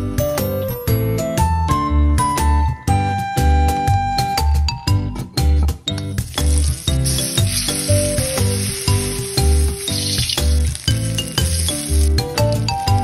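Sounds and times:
background music with beat: 0.0 - 13.0
paste sizzling in hot oil: 6.1 - 13.0
metal spatula stirring: 6.2 - 13.0.

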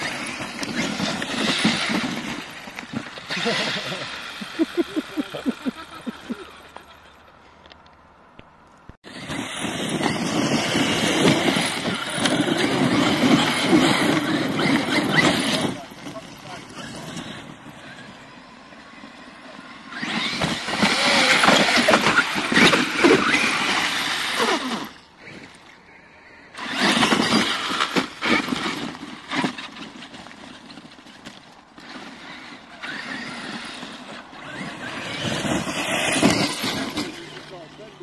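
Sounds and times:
tyres churning sand: 0.0 - 7.5, 9.0 - 38.0
electric motor whining: 9.1 - 25.7, 31.8 - 37.8.

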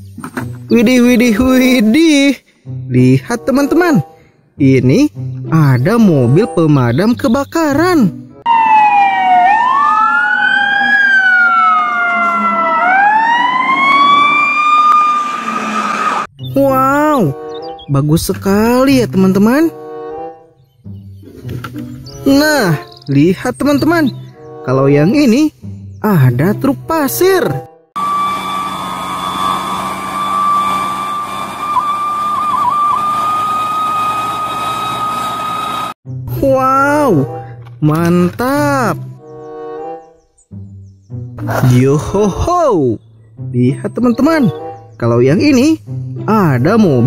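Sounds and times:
fire engine siren sweeping: 8.4 - 16.3, 28.0 - 36.0
siren gliding downward: 8.4 - 16.3, 28.0 - 36.0
high-pitched whine: 28.0 - 36.0.

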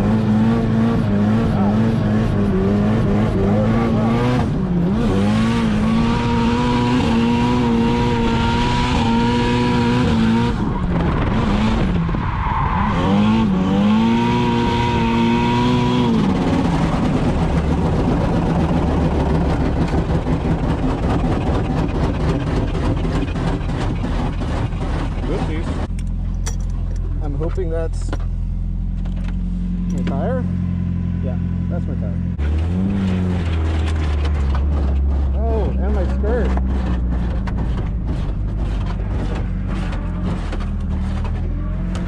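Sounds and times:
car engine revving high: 0.0 - 21.6.

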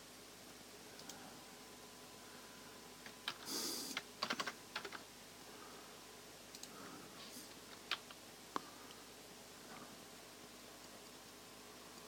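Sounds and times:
keyboard keys clicking: 3.0 - 5.0.

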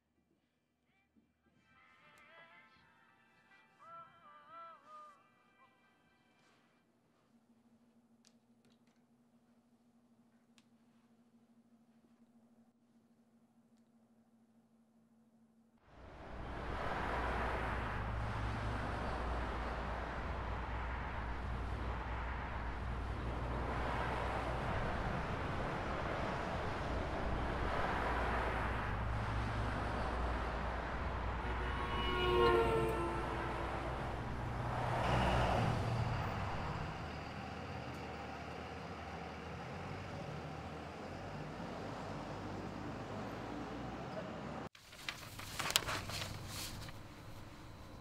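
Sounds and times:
road noise: 15.8 - 48.0
vehicle passing: 16.0 - 44.7
constant traffic hiss: 16.0 - 48.0
low engine rumble: 16.0 - 48.0.

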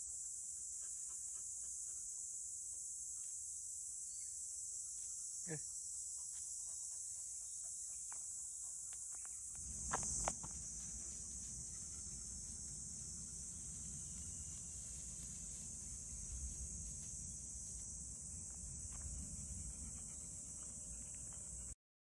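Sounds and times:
high-pitched insect chorus: 0.0 - 21.8.

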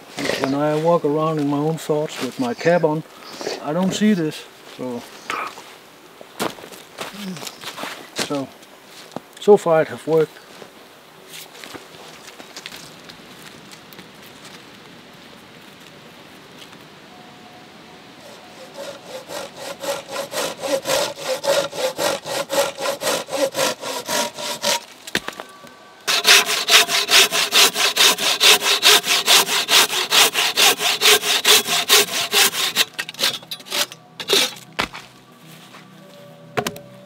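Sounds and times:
hand saw cutting log: 18.2 - 25.0, 26.1 - 34.6.

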